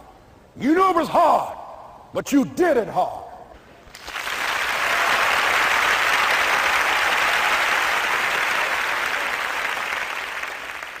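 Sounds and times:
large audience applauding: 3.9s - 11.0s.

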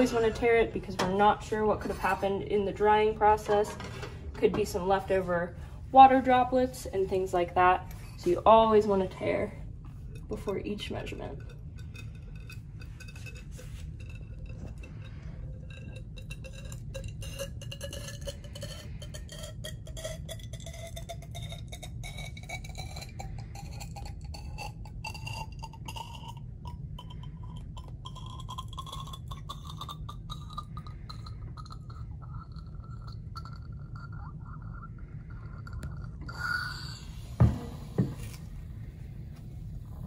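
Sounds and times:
liquid pouring into a cylinder: 11.4s - 37.4s.

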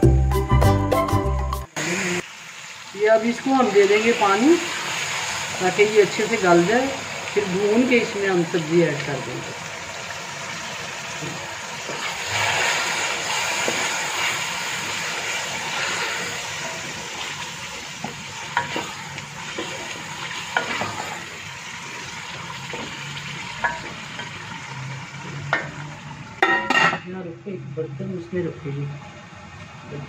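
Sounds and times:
meat sizzling in hot oil: 1.8s - 26.6s
water pouring into pot: 9.5s - 16.6s.

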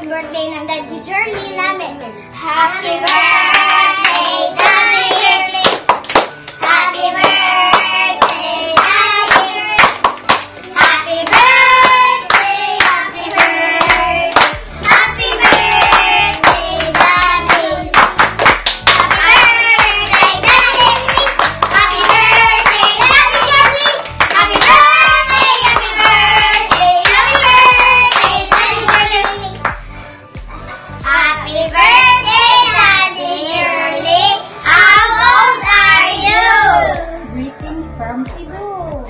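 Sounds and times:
hand clapping: 3.0s - 29.9s.

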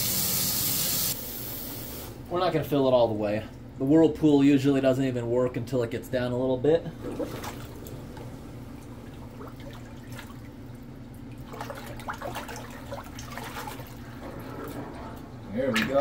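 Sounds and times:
steady low hum: 1.1s - 16.0s
water sloshing in a sink: 6.9s - 16.0s.

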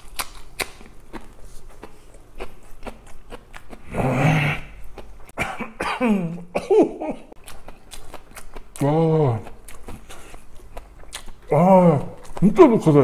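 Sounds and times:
man chewing something crunchy: 0.0s - 5.4s, 7.2s - 13.0s
man groaning: 3.9s - 4.7s, 8.8s - 9.5s, 11.5s - 12.2s
man coughing loudly: 5.4s - 7.3s.

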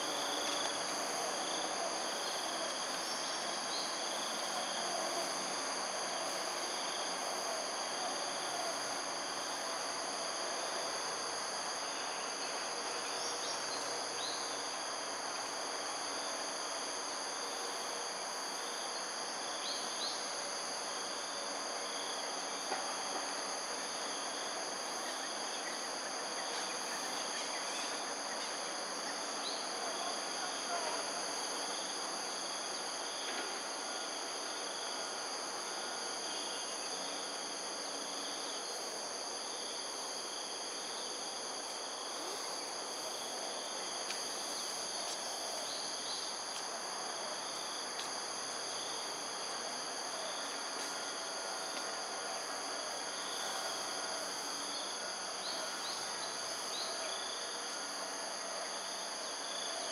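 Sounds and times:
insect chorus: 0.0s - 59.9s.

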